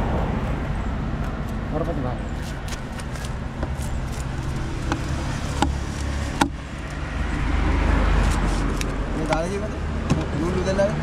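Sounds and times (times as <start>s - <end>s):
engine running: 0.0s - 11.0s
sharp knocks: 4.8s - 6.6s.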